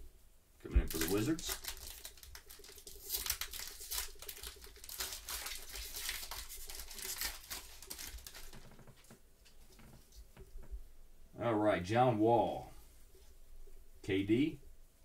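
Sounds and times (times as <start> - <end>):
foil wrapper tearing and crinkling: 0.8 - 8.9.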